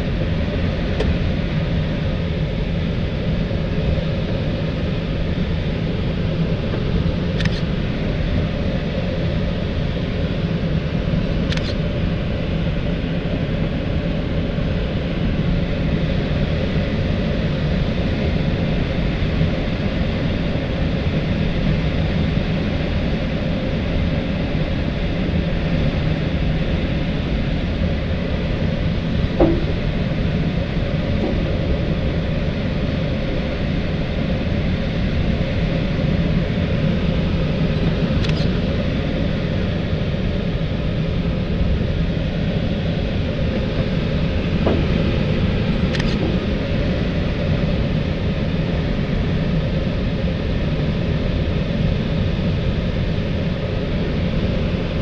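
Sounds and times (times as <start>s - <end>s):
constant low hum: 0.0s - 55.0s
brief knock: 29.4s - 30.0s, 44.6s - 45.2s.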